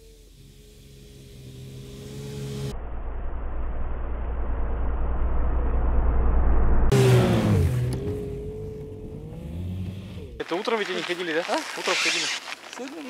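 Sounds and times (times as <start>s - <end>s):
snowmobile engine passing by: 0.1s - 2.7s, 6.9s - 13.0s.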